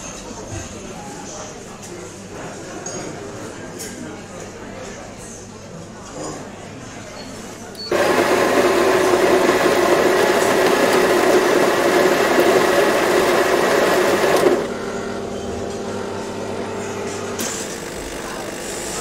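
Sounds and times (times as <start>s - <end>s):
espresso machine buzzing: 7.9s - 19.0s.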